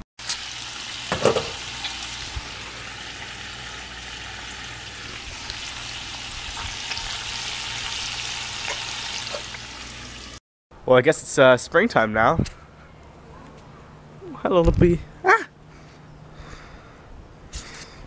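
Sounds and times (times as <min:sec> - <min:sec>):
bacon sizzling in a frying pan: 0:00.2 - 0:10.4.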